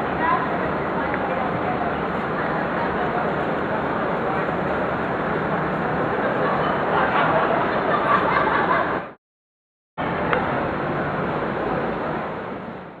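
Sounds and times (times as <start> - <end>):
traffic: 0.0 - 9.2, 10.0 - 13.0.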